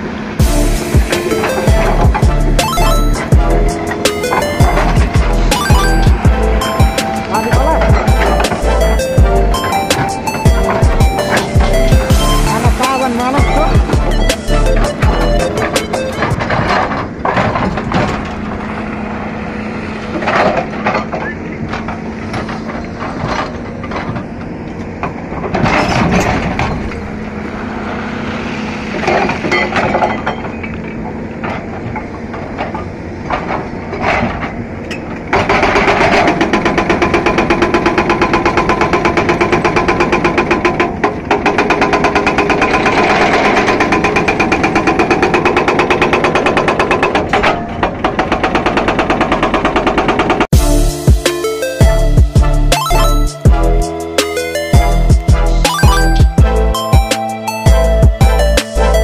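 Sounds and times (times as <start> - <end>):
excavator diesel engine running: 0.0 - 59.0
hydraulic breaker hammering rock: 0.4 - 18.8, 28.9 - 50.6.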